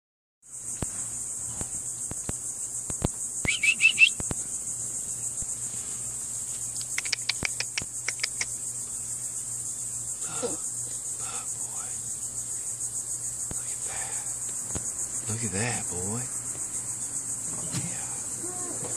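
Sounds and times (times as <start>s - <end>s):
chorus of insects: 0.4s - 18.9s
quick chirps: 3.4s - 4.4s, 6.7s - 8.6s
sharp clicks: 6.8s - 8.5s.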